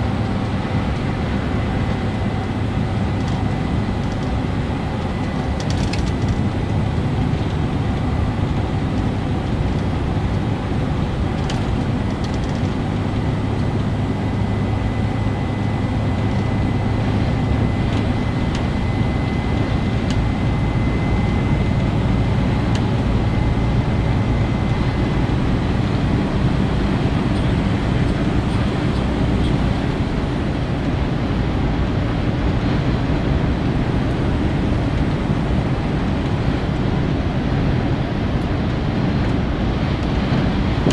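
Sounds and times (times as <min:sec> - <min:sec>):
low truck engine drone: 0:00.0 - 0:40.9
faint high whine: 0:12.9 - 0:30.3.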